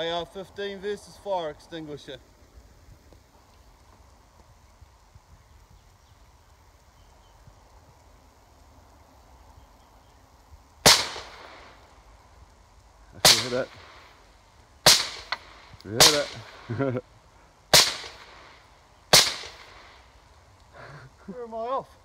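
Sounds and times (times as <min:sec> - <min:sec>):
rifle shots with echo: 0:10.8 - 0:11.8, 0:13.2 - 0:14.1, 0:14.8 - 0:16.9, 0:17.7 - 0:20.0.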